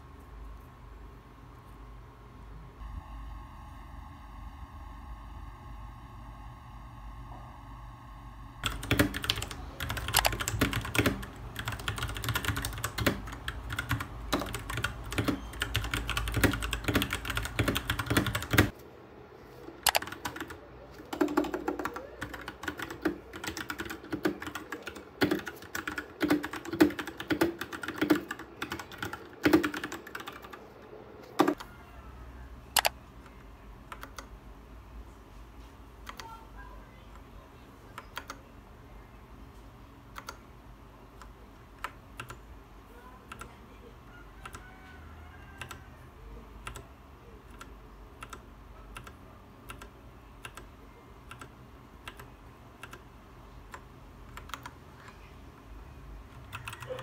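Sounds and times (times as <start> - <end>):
steady multi-tone hum: 0.0 - 57.0
mechanical keyboard typing: 8.6 - 18.8, 19.8 - 30.6, 31.2 - 31.7, 32.8 - 33.0, 33.9 - 34.3, 36.0 - 36.4, 38.0 - 38.4, 40.1 - 40.4, 41.2 - 42.4, 43.3 - 43.6, 44.4 - 44.6, 45.6 - 45.8, 46.6 - 53.1, 53.7 - 55.2, 56.3 - 57.0.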